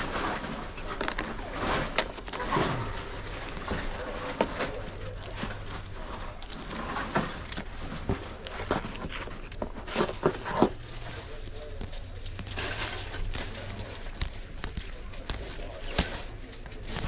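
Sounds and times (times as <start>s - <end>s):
steady low hum: 0.0s - 17.0s
trading cards clicking and tapping: 7.6s - 17.0s.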